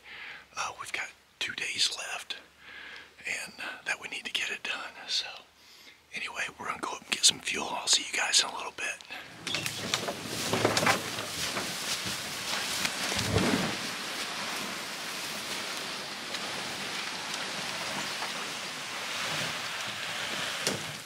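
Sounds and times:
reeds rustling along boat hull: 0:09.2 - 0:21.0.

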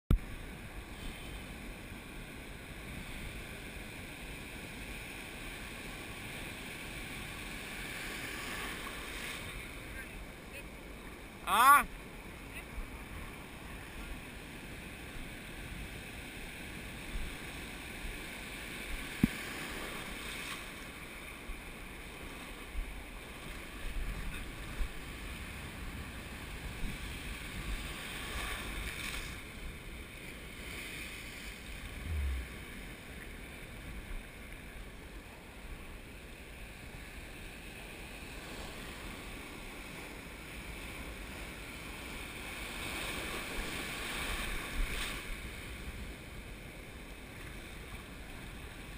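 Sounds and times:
wind on microphone: 0:31.7 - 0:32.9.

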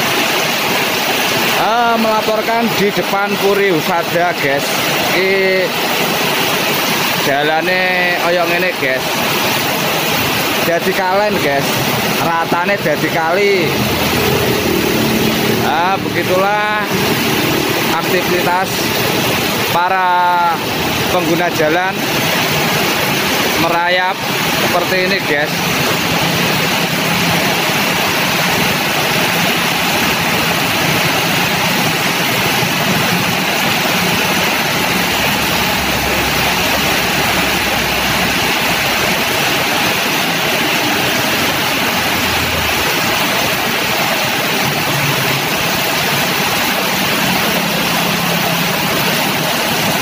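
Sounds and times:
heavy rain: 0:00.0 - 0:50.0
tyres splashing through water: 0:00.0 - 0:50.0
passing vehicle engines: 0:13.6 - 0:19.6.

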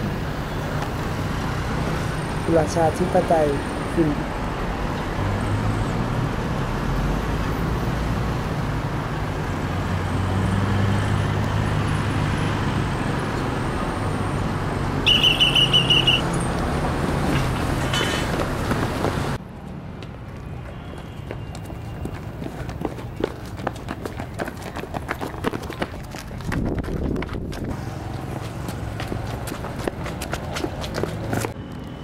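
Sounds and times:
street traffic noise: 0:00.0 - 0:32.0
high trilling tone: 0:15.1 - 0:16.2.

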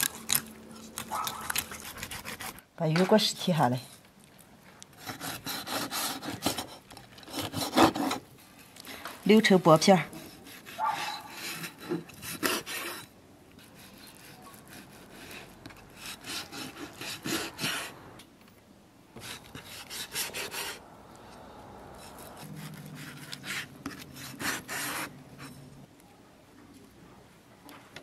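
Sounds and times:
cleaver scraping a wooden board: 0:00.0 - 0:02.6, 0:05.0 - 0:08.3, 0:09.8 - 0:18.0, 0:19.2 - 0:20.8, 0:22.0 - 0:25.7.

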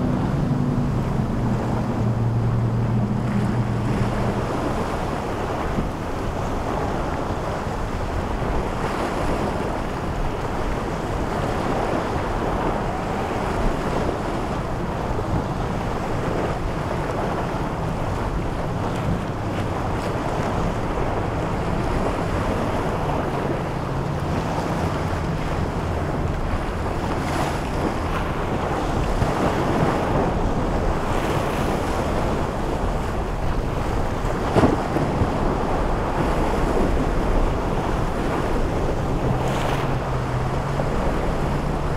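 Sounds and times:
boat engines running: 0:00.0 - 0:41.9
surf and choppy waves: 0:00.0 - 0:41.9
wind buffeting microphone: 0:00.0 - 0:41.9.

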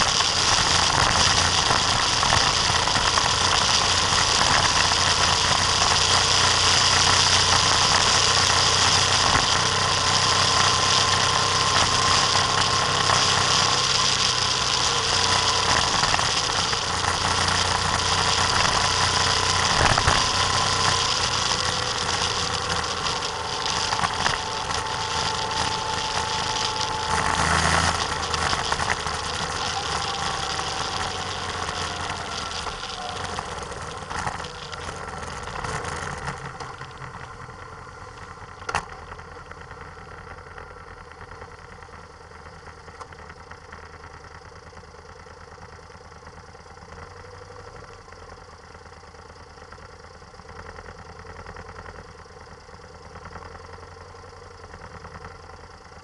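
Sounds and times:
whine drifting in pitch: 0:00.0 - 0:40.6
wind and road noise: 0:00.0 - 0:41.7
vehicle engine running: 0:00.0 - 0:56.0.

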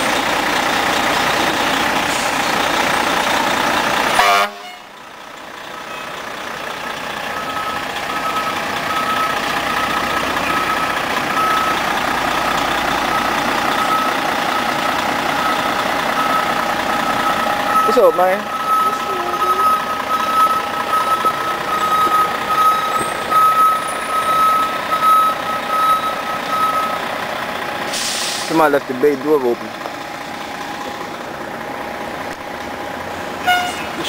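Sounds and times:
fire engine running loudly: 0:00.0 - 0:34.0
reversing alarm beeping: 0:07.3 - 0:27.1.

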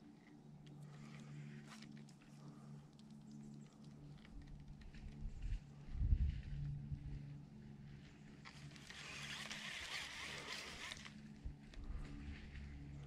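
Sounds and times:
fishing reel whirring and ticking: 0:08.5 - 0:11.3.

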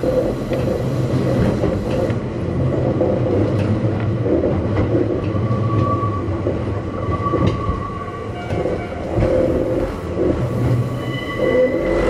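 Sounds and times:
train rumble: 0:00.0 - 0:12.0
wheels clicking over rails: 0:00.0 - 0:12.0.

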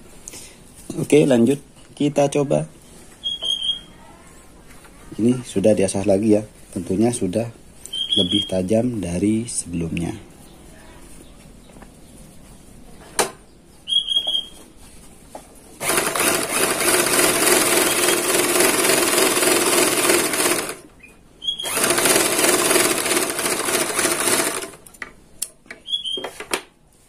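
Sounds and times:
overlock sewing machine running: 0:15.8 - 0:20.9, 0:21.6 - 0:24.9.

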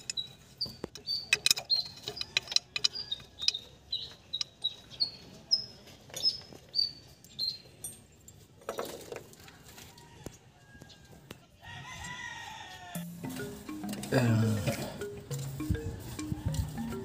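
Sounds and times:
small bird chirping: 0:00.0 - 0:07.8.

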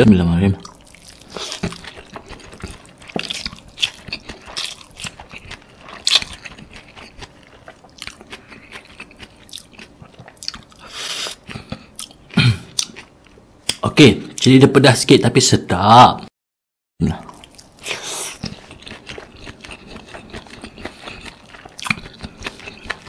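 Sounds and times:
wet smacking chewing: 0:00.6 - 0:13.1, 0:17.3 - 0:23.0.

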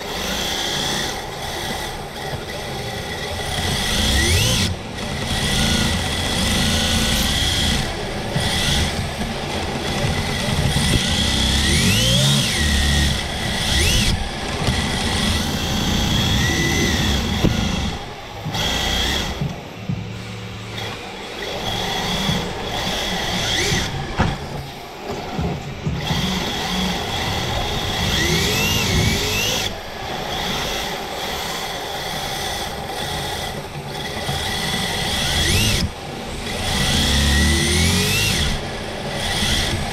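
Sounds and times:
electric motor whining: 0:00.0 - 0:39.9
tyres rumbling on concrete: 0:01.4 - 0:31.2.

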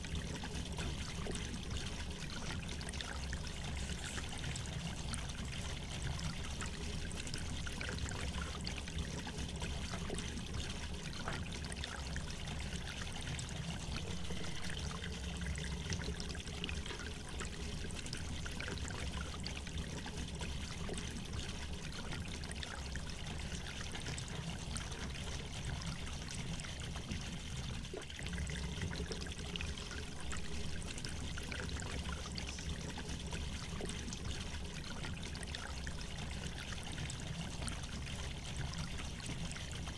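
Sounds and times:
low hum: 0:13.8 - 0:16.2.

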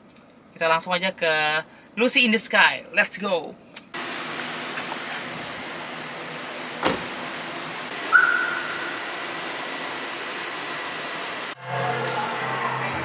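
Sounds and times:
car door shutting: 0:06.6 - 0:07.5
short high beep: 0:08.1 - 0:09.1.

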